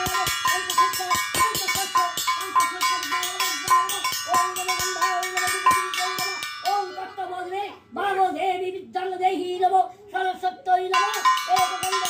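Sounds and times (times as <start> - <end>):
metal gong beaten rapidly: 0.0 - 7.3.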